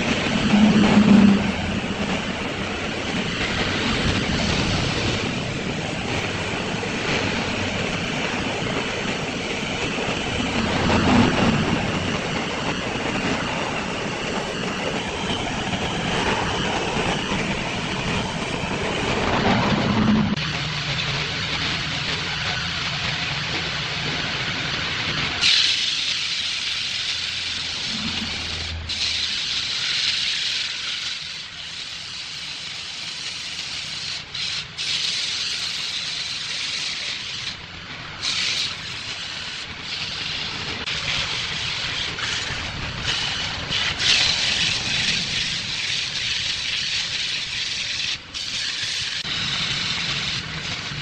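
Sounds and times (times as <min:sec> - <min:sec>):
sanding belt hissing on wood: 0:25.4 - 0:37.6, 0:38.2 - 0:50.6.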